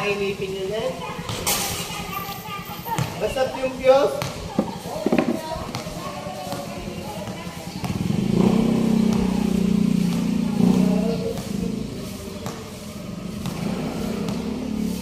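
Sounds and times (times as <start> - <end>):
vehicle engine running: 6.0 - 15.0.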